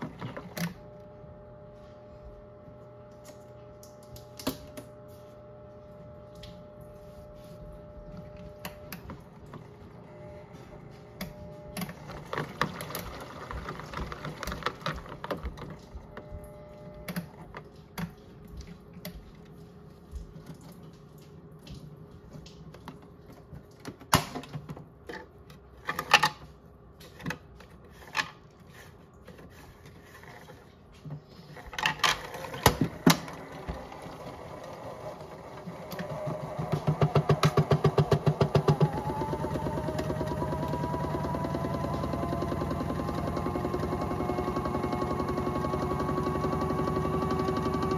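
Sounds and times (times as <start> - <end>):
toy washing machine motor: 0.0 - 1.0, 11.4 - 18.2, 27.1 - 47.9.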